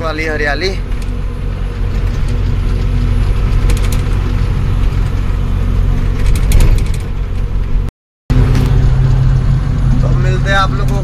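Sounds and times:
road noise: 0.0 - 11.0
truck diesel engine running: 0.0 - 11.0
cab rattles: 0.2 - 7.9.

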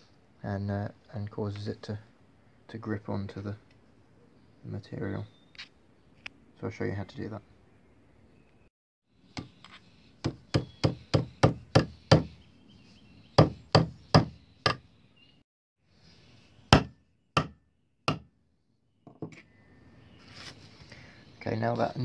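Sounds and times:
hammer striking a nail into wood: 10.2 - 12.3, 13.4 - 14.8, 16.7 - 18.3.

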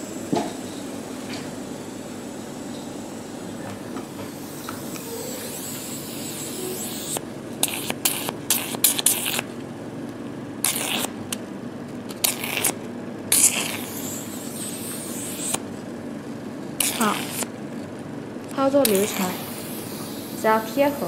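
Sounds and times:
suction pump running: 4.2 - 9.6, 10.6 - 11.3, 12.1 - 15.8, 16.7 - 21.0
hissing slurping bursts: 5.2 - 9.5, 10.6 - 11.2, 12.2 - 15.6, 16.8 - 17.5, 18.8 - 21.0.

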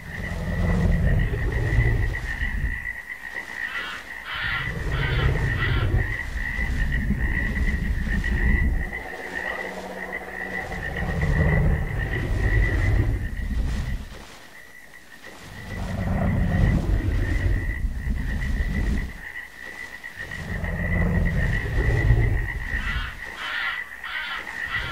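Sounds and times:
deep rumbling swells: 0.0 - 14.4, 15.4 - 23.4
high chirring chorus: 8.7 - 12.0.

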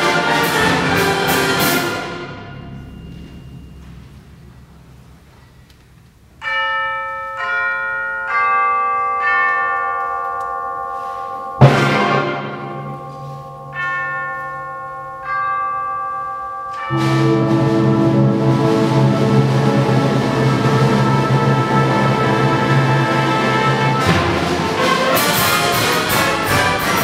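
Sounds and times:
full band playing: 0.0 - 5.4, 11.0 - 14.0, 16.8 - 27.0
tubular bells ringing: 0.0 - 27.0
percussion crash with low drum: 0.6 - 5.6.

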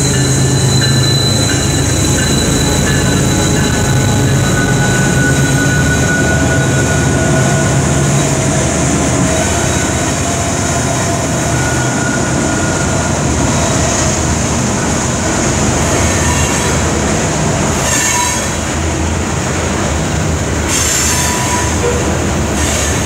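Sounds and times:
wheel squeal: 0.0 - 7.8, 17.8 - 18.6, 20.7 - 23.0
diesel locomotive passing: 0.0 - 23.0
steel wheels rumbling on rail: 0.0 - 23.0.

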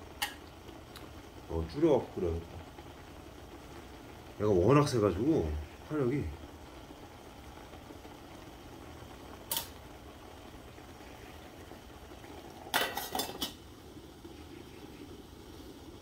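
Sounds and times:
metal lid clinking against pot: 12.7 - 13.6.

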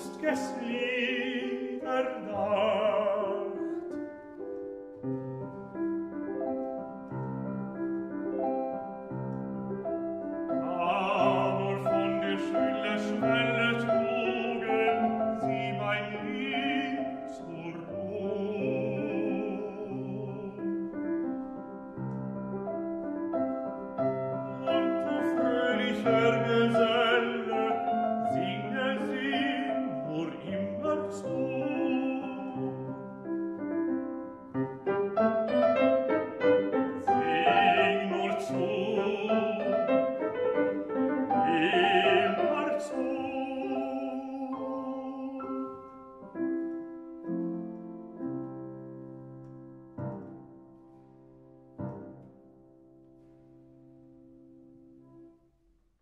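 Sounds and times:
baritone singing: 0.0 - 4.2, 10.4 - 21.3, 24.2 - 46.6
piano accompaniment: 0.0 - 56.0.

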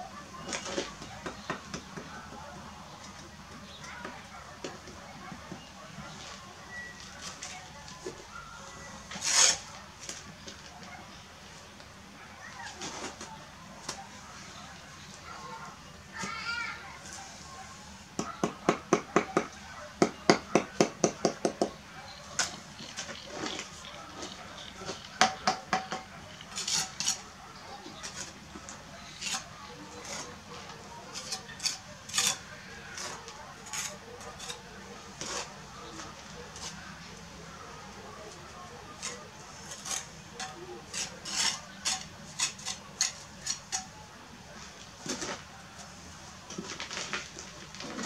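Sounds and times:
trowel scraping and clinking: 9.1 - 9.8, 26.4 - 27.3, 31.1 - 34.6, 39.0 - 44.0.

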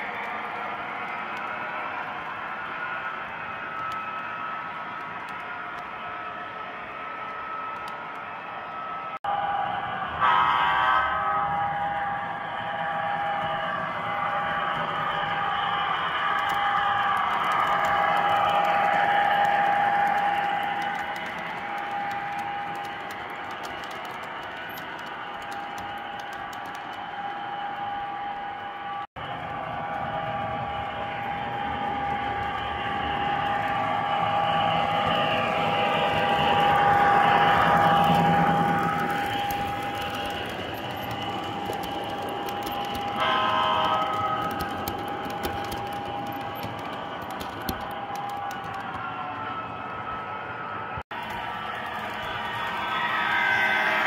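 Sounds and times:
model train cars rolling: 11.4 - 49.8, 51.1 - 54.0
wheels clicking over rail joints: 13.4 - 28.3, 29.2 - 49.4.

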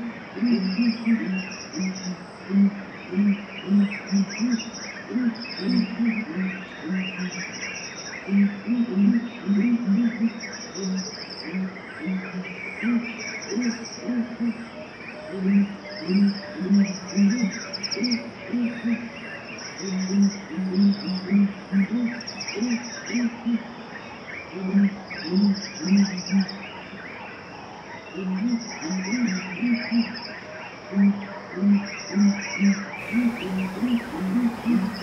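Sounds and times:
crickets trilling: 33.0 - 35.0
low-pitched pulsing call: 33.0 - 35.0
short bird calls: 33.0 - 35.0.

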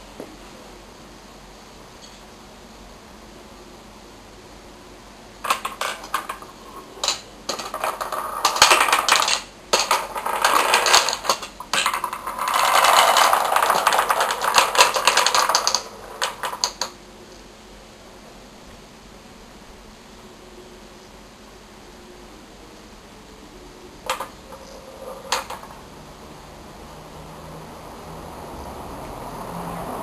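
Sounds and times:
wooden balls rolling and clattering: 5.4 - 17.0, 24.0 - 25.9.

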